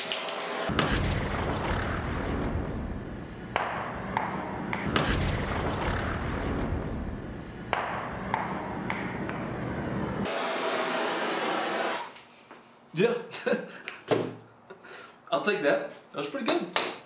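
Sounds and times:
blowtorch hissing: 0:00.0 - 0:00.7, 0:10.3 - 0:12.2.

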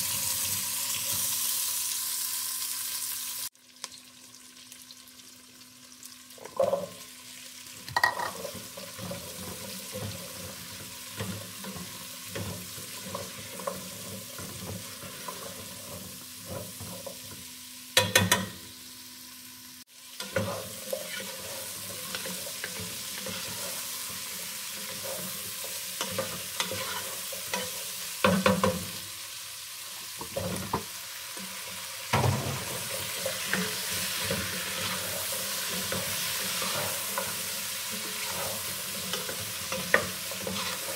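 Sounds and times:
vegetables sizzling in oil: 0:00.0 - 0:40.9.

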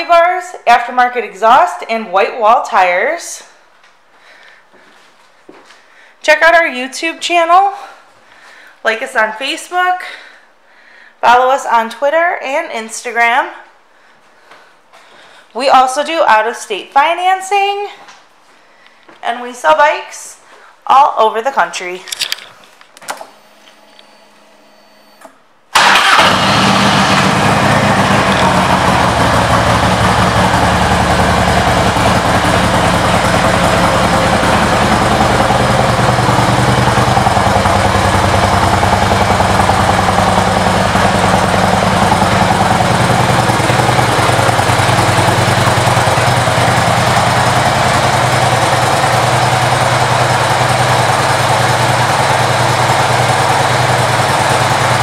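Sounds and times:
motorcycle engine starting and idling: 0:25.2 - 0:55.0.

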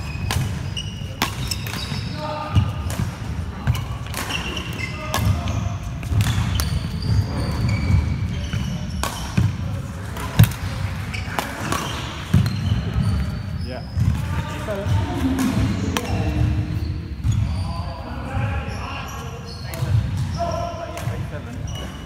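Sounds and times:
racket hitting shuttlecock: 0:00.0 - 0:02.1, 0:09.0 - 0:09.5, 0:10.1 - 0:12.5
shoes squeaking on wooden floor: 0:00.0 - 0:02.2, 0:06.5 - 0:09.2, 0:21.6 - 0:22.0
low hall rumble: 0:14.7 - 0:17.3.

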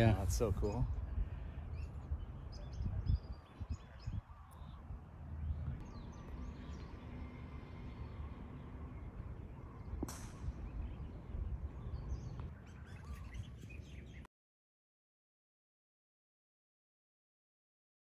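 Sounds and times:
birds chirping: 0:00.0 - 0:14.3
wind rumbling on microphone: 0:00.0 - 0:14.3
golf club striking ball: 0:09.8 - 0:11.0.

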